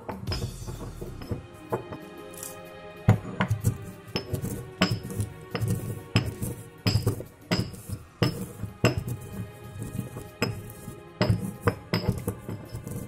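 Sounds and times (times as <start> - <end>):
background music: 0.0 - 13.0
pestle pounding in a mortar: 3.1 - 13.0.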